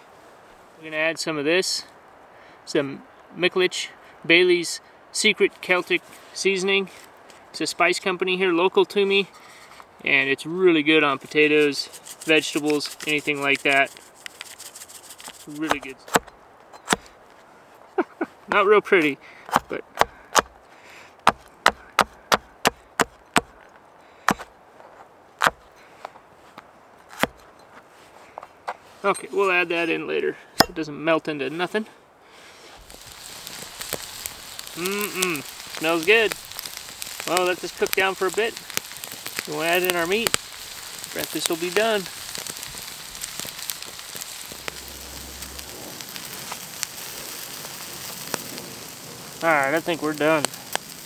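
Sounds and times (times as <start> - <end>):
burning wood crackling: 0.0 - 51.0
food sizzling in skillet: 11.3 - 15.9, 32.7 - 51.0.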